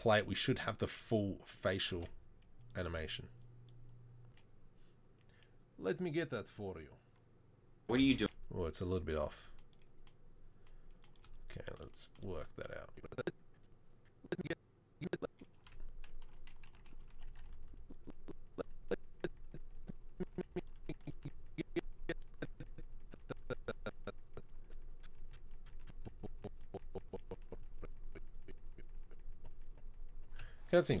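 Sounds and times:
computer keyboard keys clicking: 0:09.5 - 0:12.8, 0:15.3 - 0:18.1, 0:25.0 - 0:27.7.

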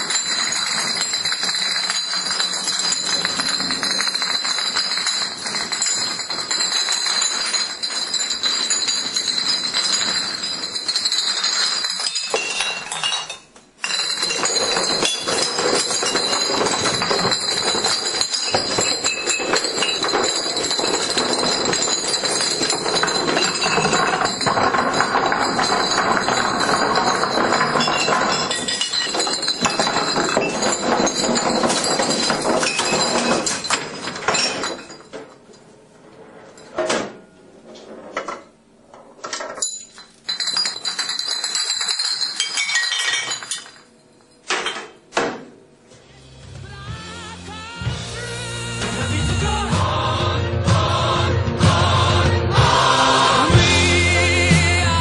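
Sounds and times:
glass bottles clinking together: 0:00.0 - 0:35.5, 0:39.2 - 0:45.1, 0:52.6 - 0:55.0.

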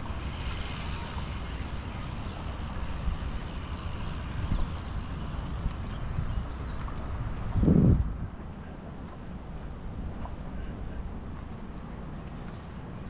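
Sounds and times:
wind buffeting microphone: 0:04.4 - 0:13.0.

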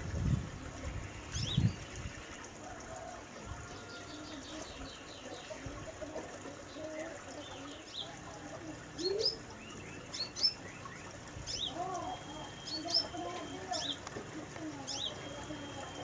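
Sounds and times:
low bird warbling: 0:08.9 - 0:14.1
bird chirping: 0:09.0 - 0:14.1, 0:14.8 - 0:16.0.

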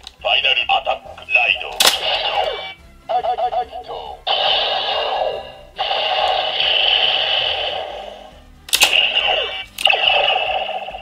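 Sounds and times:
sharp plastic click: 0:01.7 - 0:02.0, 0:08.7 - 0:09.0
toy electronic sound effects: 0:08.8 - 0:11.0.

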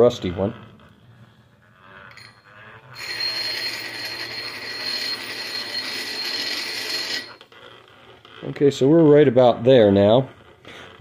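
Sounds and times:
drill bit grinding on stone wheel: 0:01.6 - 0:08.6.

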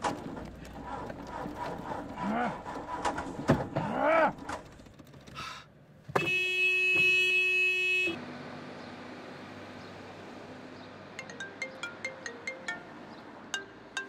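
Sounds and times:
street background noise: 0:00.0 - 0:14.0
car horn blaring: 0:06.1 - 0:08.2.

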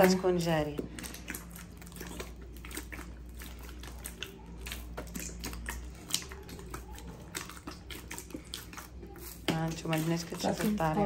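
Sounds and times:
hands kneading wet dough: 0:00.0 - 0:11.0.

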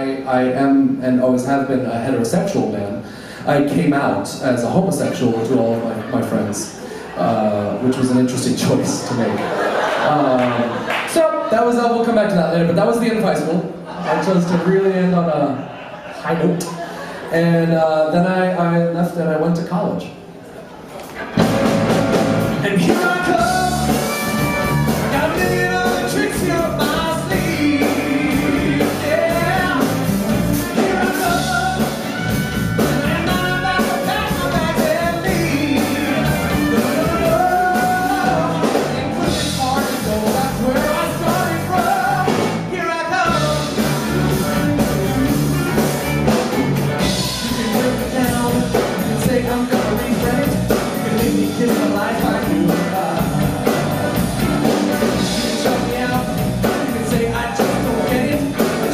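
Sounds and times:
rock and roll band playing: 0:21.0 - 0:58.9
man singing into a microphone: 0:22.6 - 0:24.0, 0:25.1 - 0:30.0, 0:30.6 - 0:32.2, 0:32.8 - 0:43.8, 0:47.1 - 0:53.9, 0:55.0 - 0:58.9.

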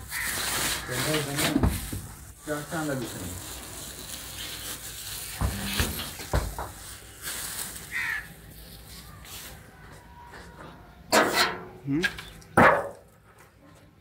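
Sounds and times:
plastic sacks rustling: 0:00.0 - 0:09.8.

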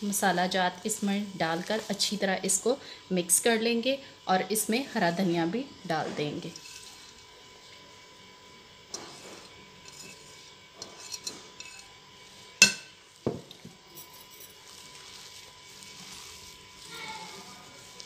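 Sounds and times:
soft mixing sounds: 0:00.0 - 0:18.0
utensils clinking against bowl: 0:09.8 - 0:12.0.

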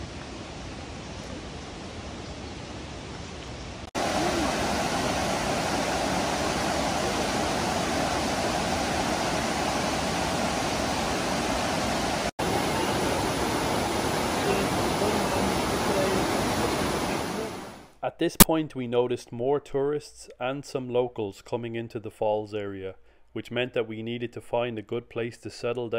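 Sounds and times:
waterfall roaring: 0:03.9 - 0:17.9.

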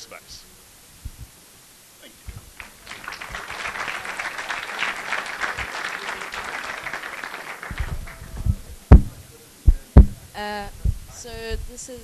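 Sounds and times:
low thumps: 0:01.0 - 0:01.4, 0:02.2 - 0:02.6, 0:07.7 - 0:11.8
audience applauding: 0:02.3 - 0:09.2.

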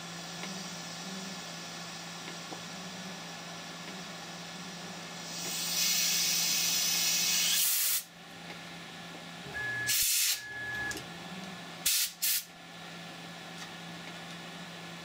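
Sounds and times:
milling machine hum: 0:00.0 - 0:05.3, 0:08.2 - 0:11.8
compressed air hissing: 0:05.2 - 0:08.1, 0:09.9 - 0:10.4, 0:11.8 - 0:12.5.

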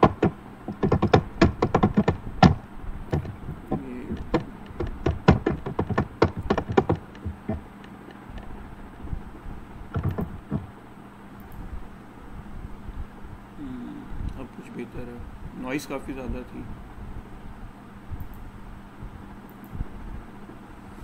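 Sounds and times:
rapid irregular clicks and knocks: 0:00.0 - 0:08.6, 0:09.9 - 0:10.7.

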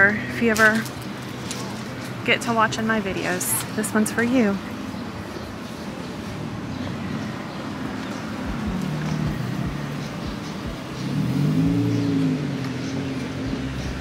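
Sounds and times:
vehicle engine driving past: 0:08.4 - 0:14.0.

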